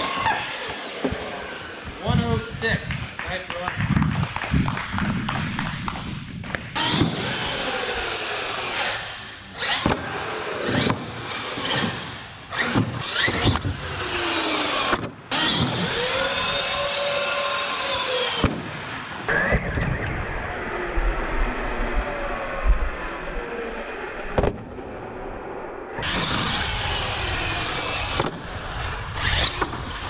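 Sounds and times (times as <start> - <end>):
electric motors whining: 0.0 - 19.3, 26.0 - 30.0
tyre and chassis noise: 0.0 - 19.8.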